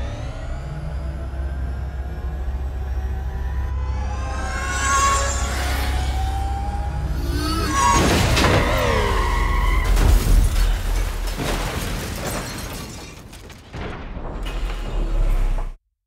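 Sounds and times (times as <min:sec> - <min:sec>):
dramatic film score: 0:00.0 - 0:11.6
crackling debris: 0:07.9 - 0:15.7.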